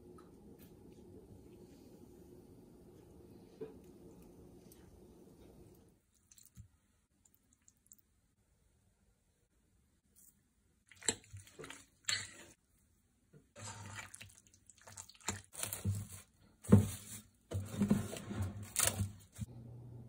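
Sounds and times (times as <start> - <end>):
wet squelching of chicken: 10.8 - 12.6, 13.6 - 15.9.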